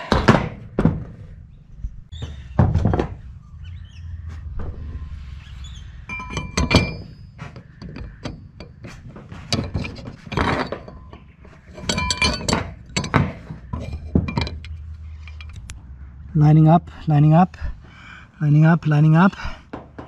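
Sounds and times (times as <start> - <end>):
low rumble: 0.6 - 8.6
metal bars clinking: 5.8 - 15.8.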